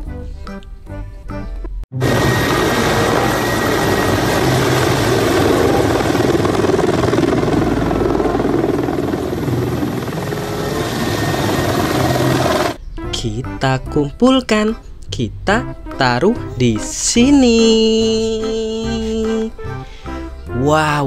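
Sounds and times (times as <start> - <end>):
helicopter rotor and engine: 2.0 - 12.8.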